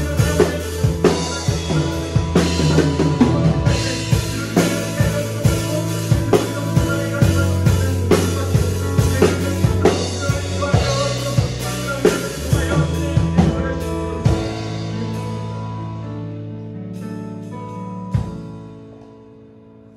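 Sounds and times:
drum kit playing a beat: 0:00.0 - 0:19.0
music backing track: 0:00.0 - 0:19.9.

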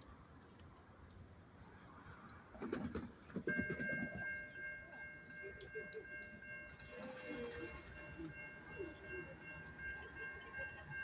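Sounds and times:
crossing warning bell ringing: 0:03.4 - 0:11.0.

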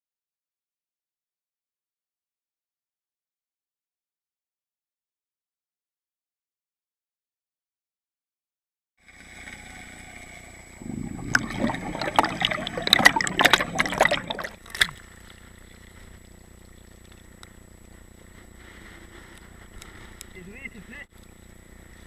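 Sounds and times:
water sloshing and splashing: 0:10.8 - 0:17.2.

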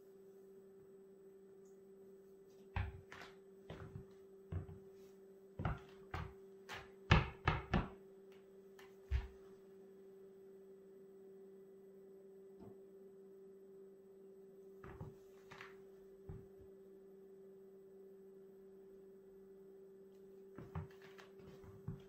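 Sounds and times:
studded shoes knocking on wooden floor: 0:03.7 - 0:04.8.

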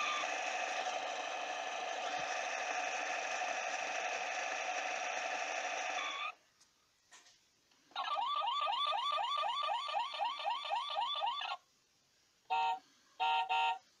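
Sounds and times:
toy siren whoop: 0:08.0 - 0:11.6
electronic horn beeps: 0:12.5 - 0:13.8.

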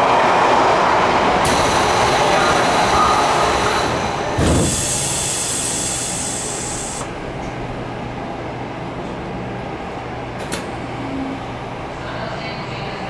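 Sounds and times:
subway car low hum: 0:00.0 - 0:13.0
compressed air hiss: 0:04.5 - 0:07.1.

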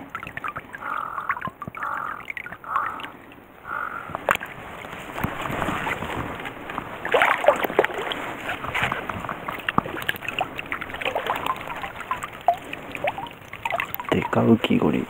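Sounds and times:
bird calling: 0:00.0 - 0:04.6, 0:08.6 - 0:15.0
dip net splashing in water: 0:00.0 - 0:14.4
grass rustling: 0:03.7 - 0:15.0.

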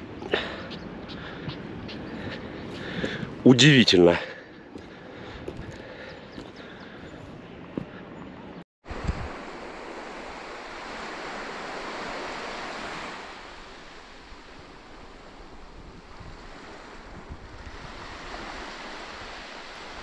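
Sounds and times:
sea waves surging: 0:08.8 - 0:20.0.

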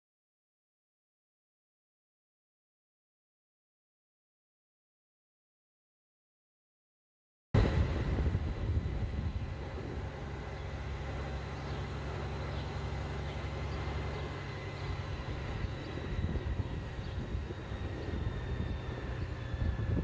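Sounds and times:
vehicle engine and road drone: 0:07.6 - 0:20.0.

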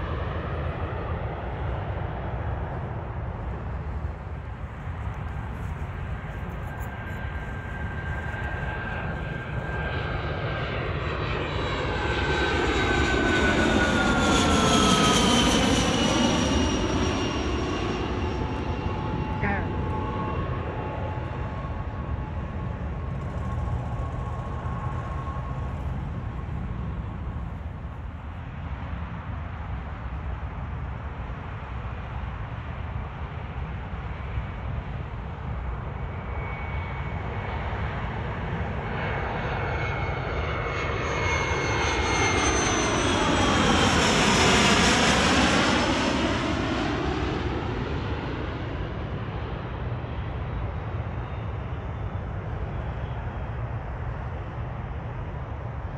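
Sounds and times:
jet passing overhead: 0:00.0 - 0:55.9
steady low rumble: 0:00.8 - 0:33.6.

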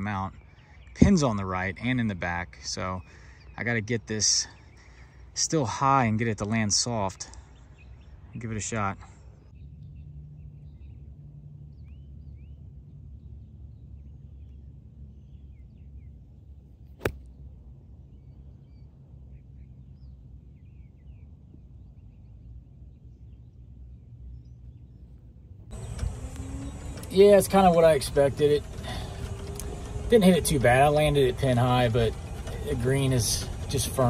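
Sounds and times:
low steady rumble: 0:00.0 - 0:34.0
golf club striking ball: 0:17.0 - 0:17.3.

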